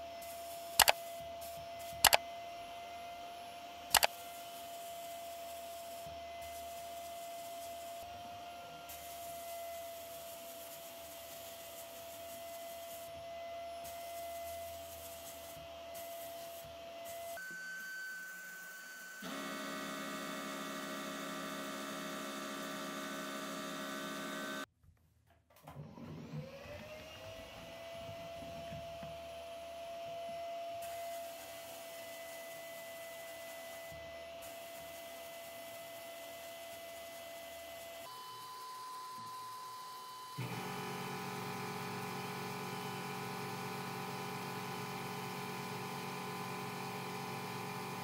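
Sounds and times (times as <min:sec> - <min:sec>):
sandblaster air hiss: 0:08.9 - 0:13.1, 0:13.8 - 0:17.4.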